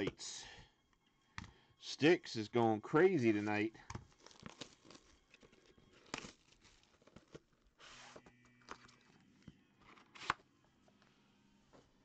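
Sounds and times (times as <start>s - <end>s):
plastic wrap rustling: 3.4s - 8.2s.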